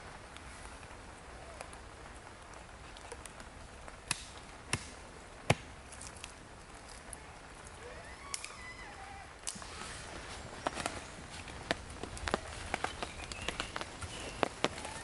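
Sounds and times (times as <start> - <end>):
axe chopping wood: 4.1 - 4.9, 5.5 - 5.7.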